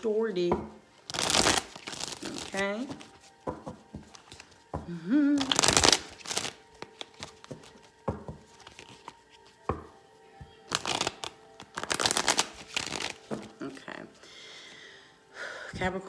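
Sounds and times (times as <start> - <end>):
cards being shuffled: 1.0 - 4.8, 5.4 - 9.7, 10.7 - 13.6.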